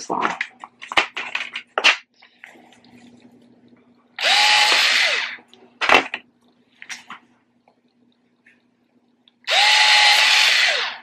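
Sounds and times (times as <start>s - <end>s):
cordless screwdriver motor whine: 4.2s - 5.4s, 9.5s - 11.0s.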